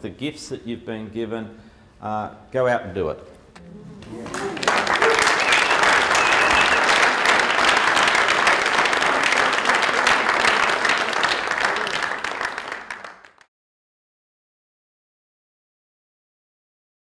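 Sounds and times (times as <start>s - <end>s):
audience applauding: 4.0s - 13.5s.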